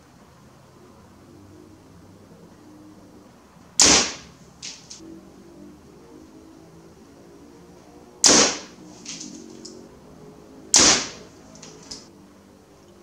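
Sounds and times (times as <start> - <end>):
arrow striking target: 3.8 - 5.0, 8.2 - 9.5, 10.7 - 12.1.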